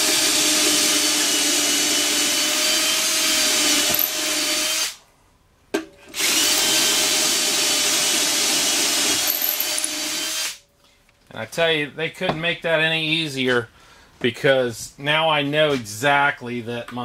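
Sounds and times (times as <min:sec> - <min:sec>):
cordless drill whining: 0:06.2 - 0:10.6.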